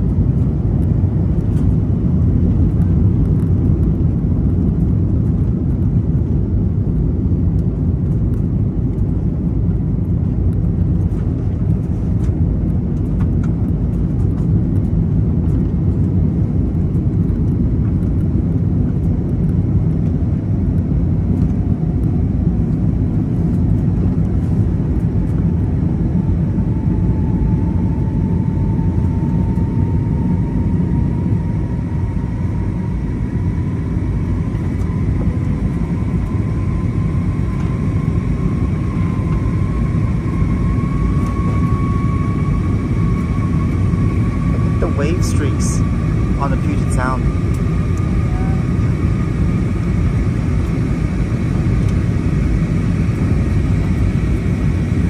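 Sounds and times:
jet engines and airflow rumble: 0:00.0 - 0:55.0
faint rising whine: 0:10.1 - 0:55.0.

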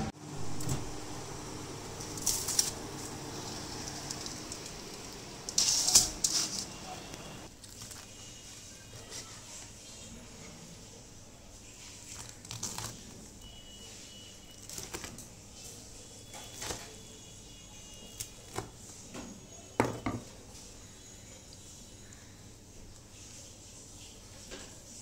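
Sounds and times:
knife crunching fried chicken: 0:12.0 - 0:13.2.

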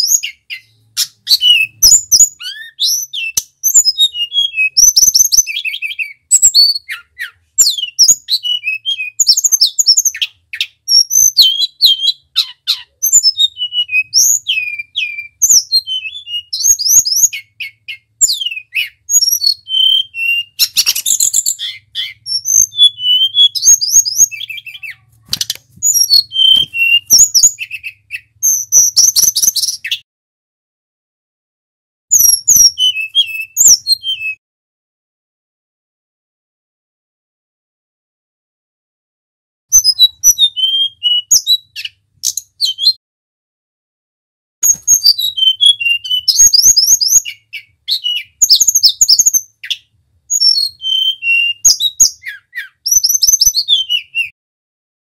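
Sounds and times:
bird singing whistled phrases: 0:00.0 - 0:30.0, 0:32.1 - 0:34.4, 0:39.7 - 0:43.0, 0:44.6 - 0:54.4
sharp clicks: 0:25.3 - 0:25.8.

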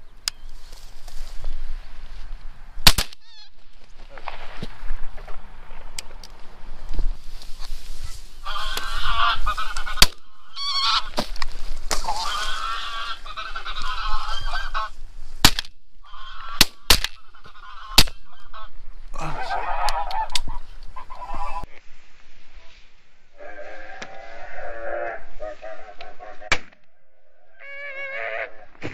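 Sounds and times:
geese honking: 0:07.6 - 0:11.2, 0:11.9 - 0:15.0, 0:16.0 - 0:21.8.

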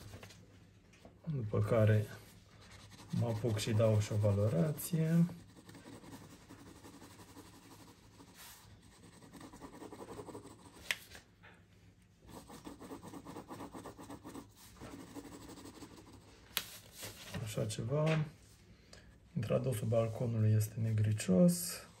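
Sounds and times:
pencil scratching on paper: 0:01.8 - 0:11.0, 0:12.2 - 0:17.2.

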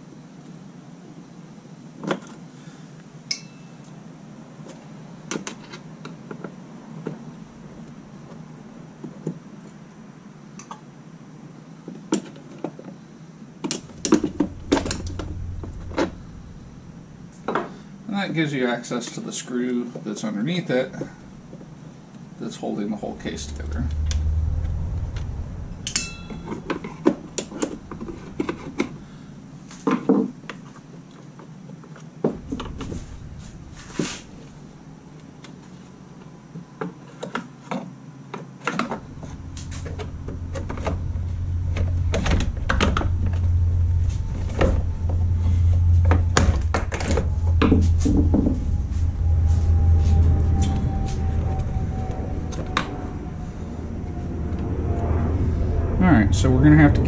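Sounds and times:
low rumble: 0:07.2 - 0:08.7, 0:13.7 - 0:31.1, 0:32.2 - 0:36.8, 0:38.7 - 0:57.0.

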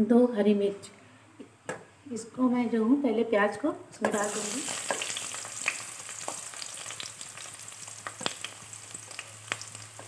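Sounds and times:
oil popping and crackling: 0:04.1 - 0:10.0
onions sizzling in oil: 0:04.1 - 0:10.0.

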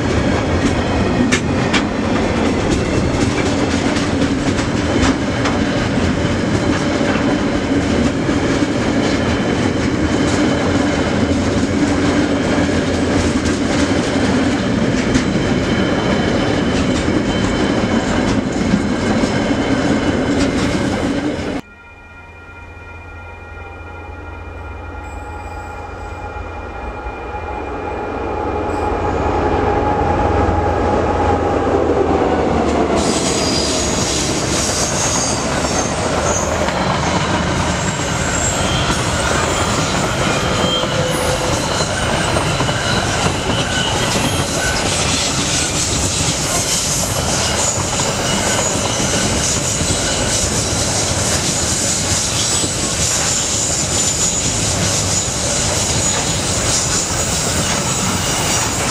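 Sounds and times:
locomotive passing: 0:00.0 - 0:21.7, 0:22.5 - 0:58.9
high wheel squeals: 0:33.0 - 0:58.9.

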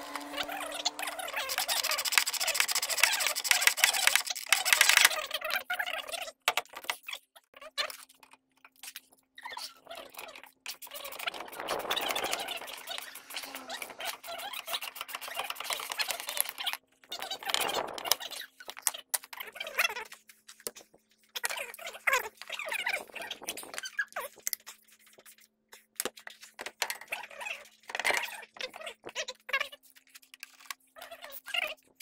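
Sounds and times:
sped-up ratchet clicks and clinks: 0:00.0 - 0:05.2.

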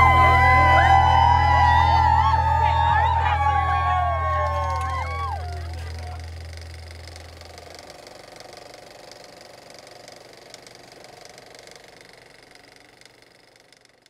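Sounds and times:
shimmering logo drone: 0:00.0 - 0:08.9
low hum: 0:00.0 - 0:13.2.

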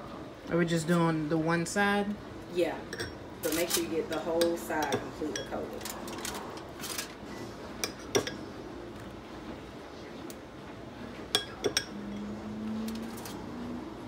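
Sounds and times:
metal spoon clinking bowl: 0:02.9 - 0:03.2, 0:04.1 - 0:05.8, 0:11.3 - 0:12.3.

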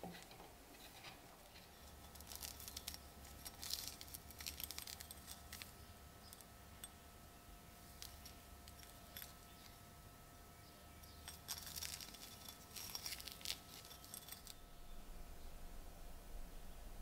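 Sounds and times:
faint steady hum: 0:00.0 - 0:17.0
gloved hands rustling: 0:01.4 - 0:06.5, 0:11.1 - 0:14.6.

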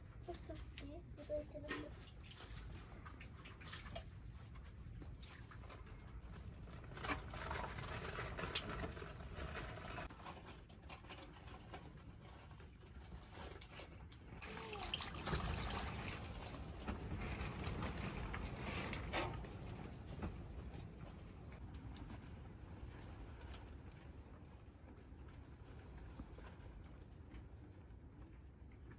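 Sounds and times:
small splashes and drips: 0:01.5 - 0:09.2, 0:13.2 - 0:17.0
hands sloshing in liquid: 0:01.9 - 0:06.1.

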